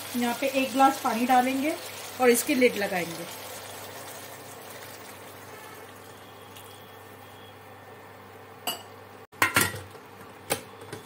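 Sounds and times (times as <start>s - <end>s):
water pouring into a pot: 0.0s - 7.0s.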